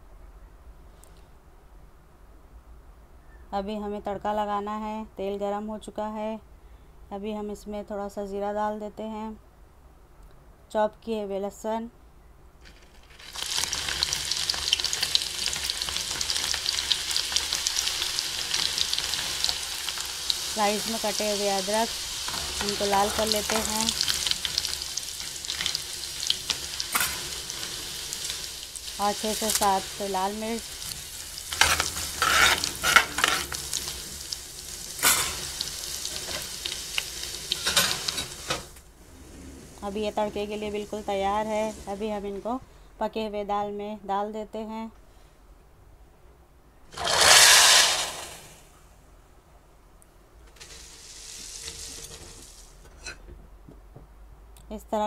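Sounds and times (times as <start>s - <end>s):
garlic sizzling in hot oil: 12.6s - 38.8s, 39.8s - 42.5s, 46.9s - 48.6s, 50.5s - 52.8s
spatula scraping a pan: 21.9s - 28.5s, 30.8s - 34.0s, 35.0s - 36.7s, 46.9s - 48.4s, 50.6s - 53.2s.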